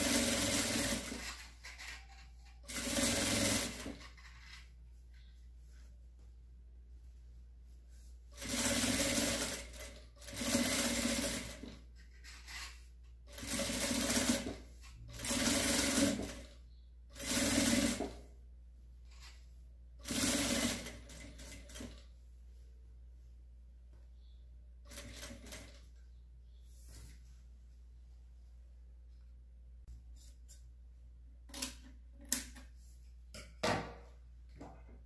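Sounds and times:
sewing machine stitching: 0.0s - 4.7s, 8.4s - 18.2s, 20.0s - 22.0s, 24.9s - 25.9s.

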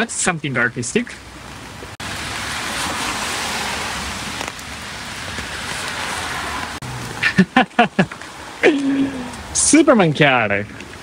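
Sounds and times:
rain hiss on wet pavement: 0.2s - 11.0s
rain on an umbrella: 1.3s - 9.7s.

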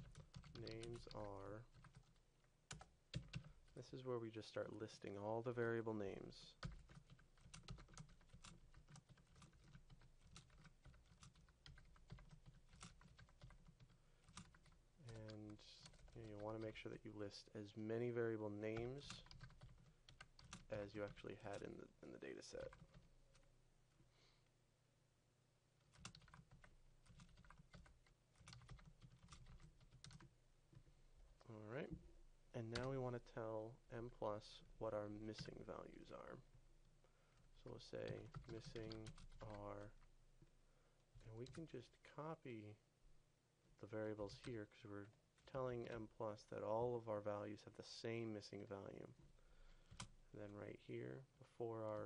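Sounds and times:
keyboard typing: 0.0s - 3.8s, 6.5s - 16.8s, 18.7s - 21.7s, 22.6s - 23.5s, 25.8s - 30.3s, 37.6s - 40.1s, 41.2s - 41.6s.

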